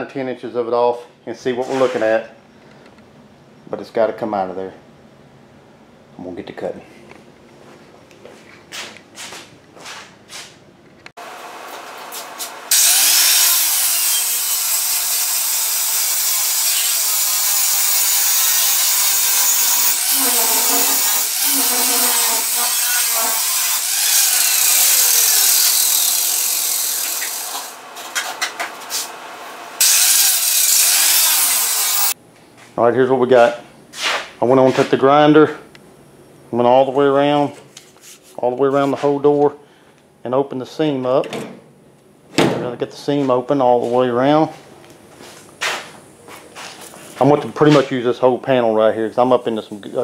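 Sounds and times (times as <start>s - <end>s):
angle grinder grinding metal: 11.7s - 32.2s.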